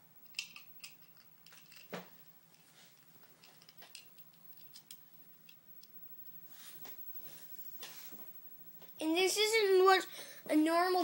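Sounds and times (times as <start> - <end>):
plastic pieces clicking: 0.2 - 1.9, 3.4 - 6.0.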